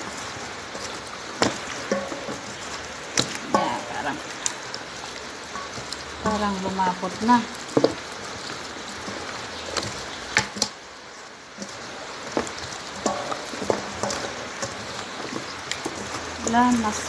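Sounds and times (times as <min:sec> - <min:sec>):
wet squelching of kneaded meat: 0:00.0 - 0:17.0
meat pieces slapping together: 0:00.1 - 0:04.8, 0:11.5 - 0:17.0.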